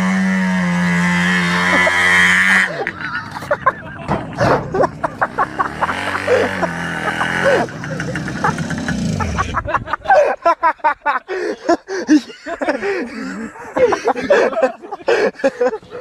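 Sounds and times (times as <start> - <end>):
motor engine winding down: 0.0 - 2.9, 4.4 - 9.6.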